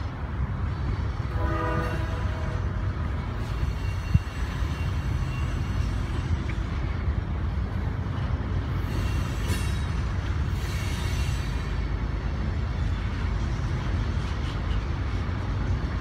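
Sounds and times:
train cars rumbling past: 0:00.0 - 0:16.0
train horn: 0:01.2 - 0:02.9.

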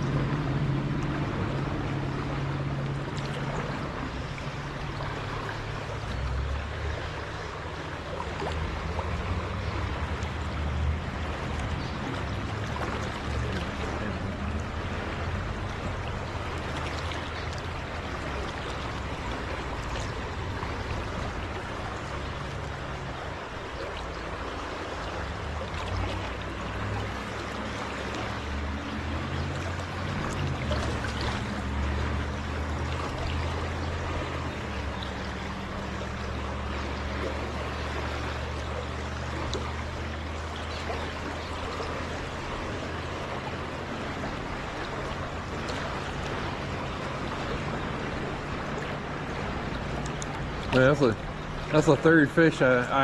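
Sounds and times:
low hum: 0:00.0 - 0:52.1
river current rushing: 0:00.0 - 0:53.0.

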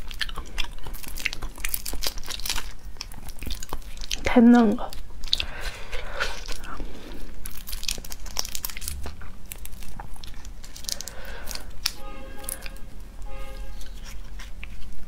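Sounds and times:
shrimp shell crackling: 0:05.0 - 0:12.8.

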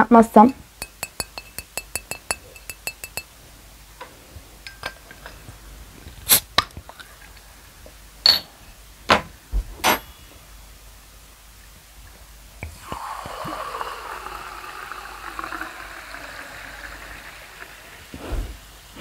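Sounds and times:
glass bottle clinking: 0:00.8 - 0:03.3, 0:04.6 - 0:05.4, 0:08.3 - 0:08.6.

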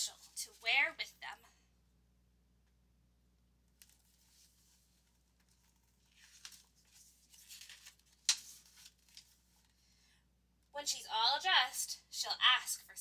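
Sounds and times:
paper rustling: 0:03.8 - 0:09.8
book page slapping: 0:05.4 - 0:09.4.

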